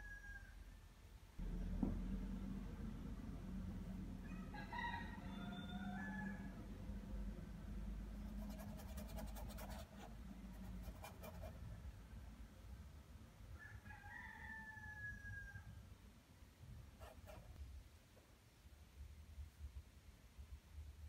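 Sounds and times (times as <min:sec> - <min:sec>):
rooster crowing: 0:00.0 - 0:00.6, 0:04.2 - 0:06.6, 0:13.6 - 0:15.8.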